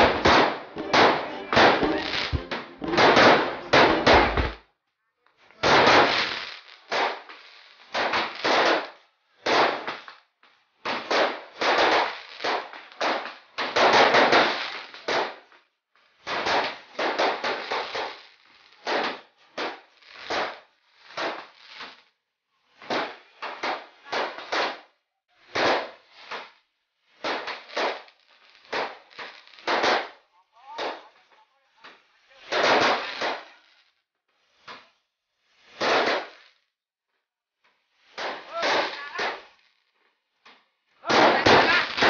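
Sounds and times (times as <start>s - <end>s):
fireworks crackling pops: 0.0s - 4.7s, 5.4s - 36.8s, 37.6s - 42.0s.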